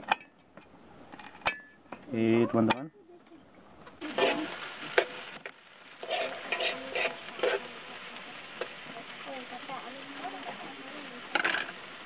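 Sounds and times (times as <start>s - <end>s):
utensil scraping cookware: 4.1s - 5.1s, 6.0s - 7.7s.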